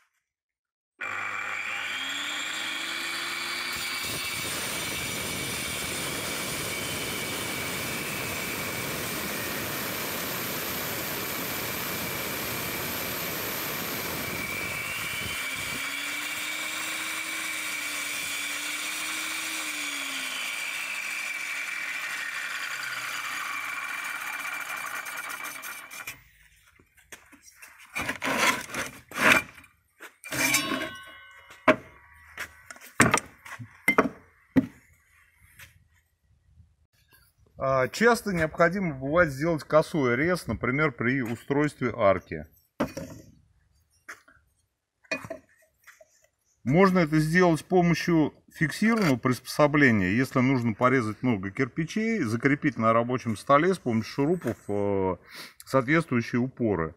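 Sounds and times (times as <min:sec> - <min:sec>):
angle grinder cutting brick: 0:01.0 - 0:26.4, 0:28.0 - 0:32.0.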